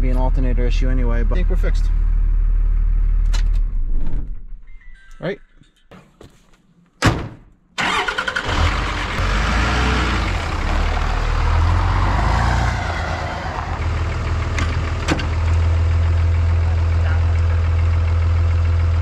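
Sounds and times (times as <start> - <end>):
vehicle engine rumbling: 0.0 - 4.8, 7.8 - 19.0
car hood slammed shut: 7.0 - 7.5.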